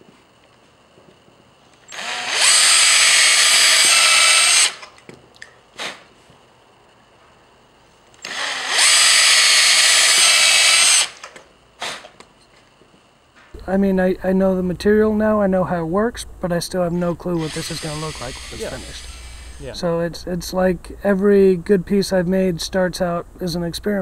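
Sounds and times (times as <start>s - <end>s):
power drill spinning: 1.9s - 5.0s, 8.2s - 12.1s, 17.4s - 19.7s.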